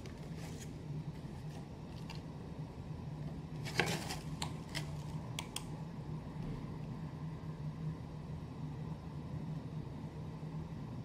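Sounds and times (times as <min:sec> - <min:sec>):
cardboard crackle: 0:00.0 - 0:02.2, 0:03.6 - 0:05.2
steady low hum: 0:00.0 - 0:11.0.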